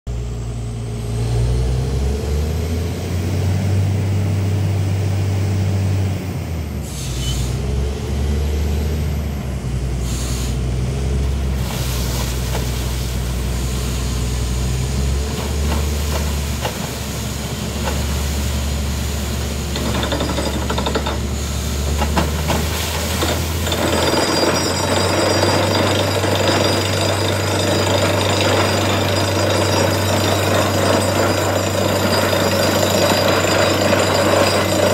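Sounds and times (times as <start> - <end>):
drilling rig engine droning: 13.4 - 34.9
drill bit hammering rattle: 19.7 - 34.9.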